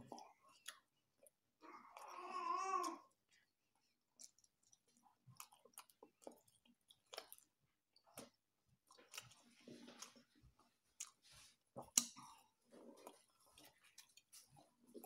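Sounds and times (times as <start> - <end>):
wet chewing smacks: 4.2 - 15.0.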